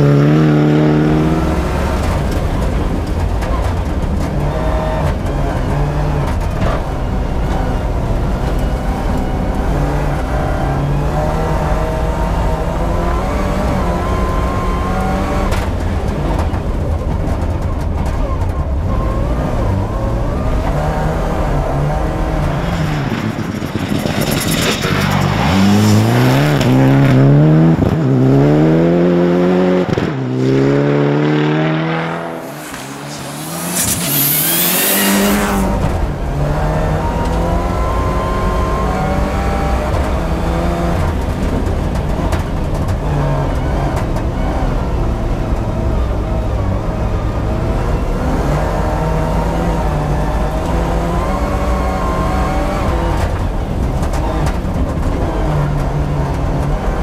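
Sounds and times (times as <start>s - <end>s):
rally car passing at speed: 0.0s - 18.2s, 18.9s - 57.0s
rally car engine revving: 0.0s - 57.0s.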